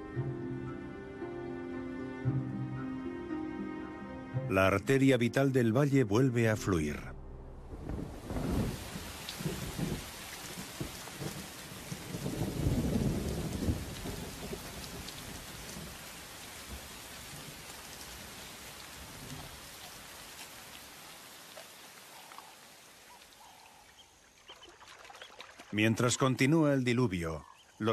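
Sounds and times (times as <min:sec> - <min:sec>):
deep thunder rolls: 0:07.1 - 0:16.0
heavy rain falling: 0:07.8 - 0:23.4.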